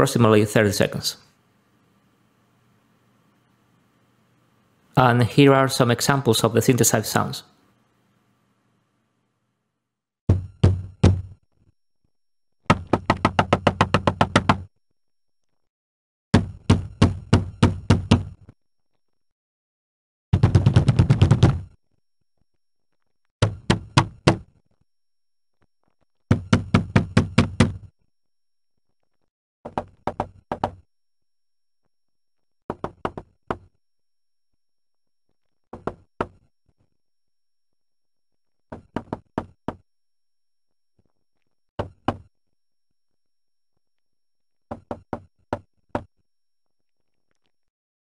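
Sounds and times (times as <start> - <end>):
synthesised sharp knocks: 10.3 - 11.4, 16.4 - 18.4, 23.4 - 24.5.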